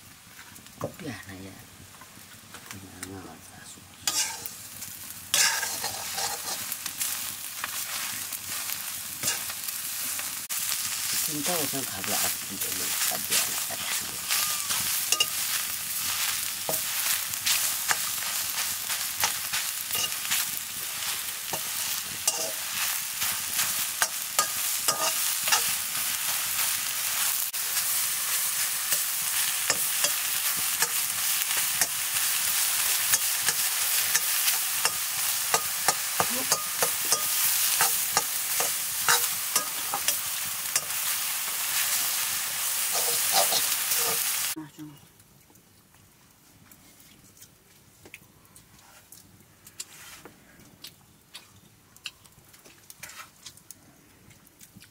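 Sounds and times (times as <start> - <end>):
greens sizzling in a wok: 0.0 - 44.7
metal spatula scraping wok: 4.0 - 44.6.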